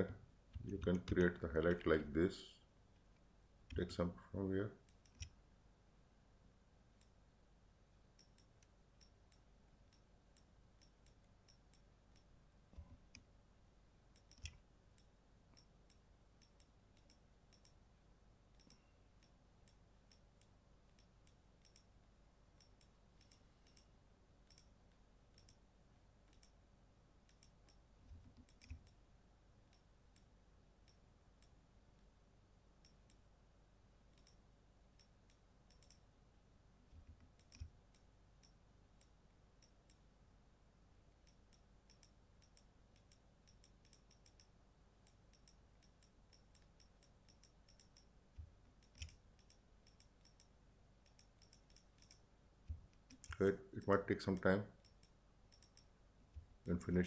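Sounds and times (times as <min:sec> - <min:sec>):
computer mouse clicks: 0:04.8 - 0:05.4, 0:14.1 - 0:17.8, 0:18.5 - 0:21.9, 0:22.6 - 0:25.6, 0:26.2 - 0:26.6, 0:27.3 - 0:29.0, 0:34.1 - 0:34.4, 0:35.0 - 0:36.0, 0:36.9 - 0:40.0, 0:41.2 - 0:56.8.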